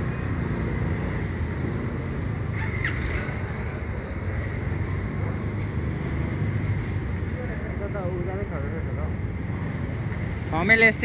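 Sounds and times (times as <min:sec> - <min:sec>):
street traffic rumble: 0:00.0 - 0:11.0
brief high squeak: 0:02.6 - 0:03.4.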